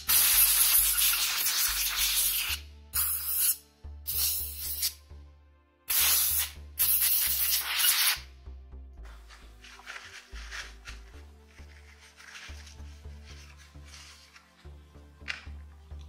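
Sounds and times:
compressed air blasting: 0:00.0 - 0:05.0, 0:05.9 - 0:08.2.

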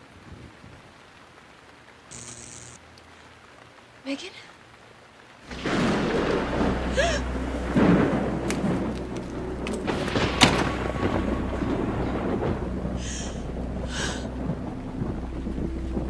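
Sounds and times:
steady rain: 0:00.0 - 0:16.0
thunder rumbling: 0:05.4 - 0:16.0
sharp thunder crack: 0:05.5 - 0:16.0.

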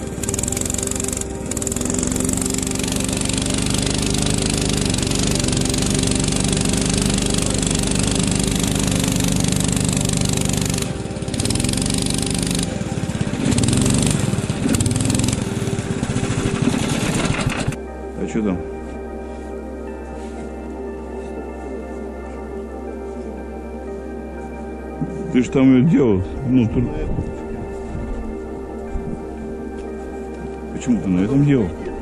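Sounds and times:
small petrol engine running: 0:00.0 - 0:17.8.

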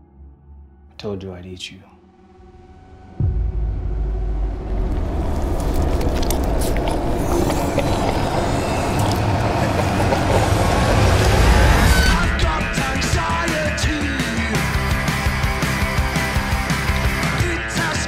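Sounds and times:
dense low rumbling roar: 0:03.2 - 0:13.5.

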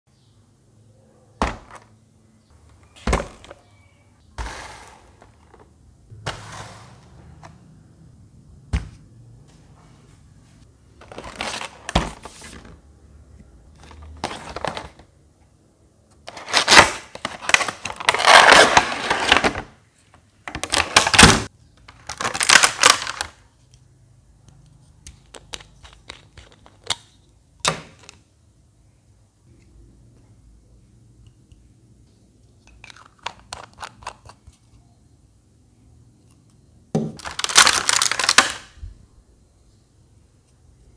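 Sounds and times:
plastic rustling and crinkling: 0:37.2 - 0:38.7.

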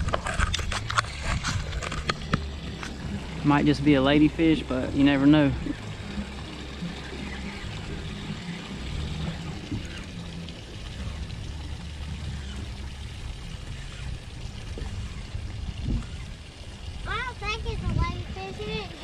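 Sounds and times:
wind on microphone: 0:00.0 - 0:03.6, 0:12.5 - 0:19.0
small waves lapping on boat hull: 0:00.0 - 0:19.0.

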